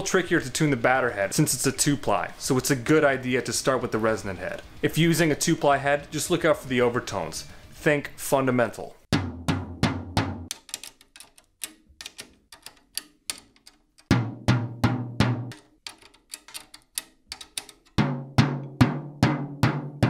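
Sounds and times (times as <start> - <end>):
drumstick tapping tom drum: 9.1 - 10.6, 14.1 - 15.7, 18.0 - 20.0.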